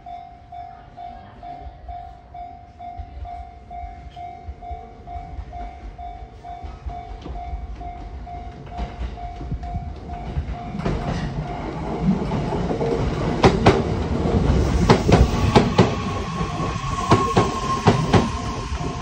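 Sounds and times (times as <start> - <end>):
electric train running: 7.6 - 19.0
steady whine: 14.0 - 19.0.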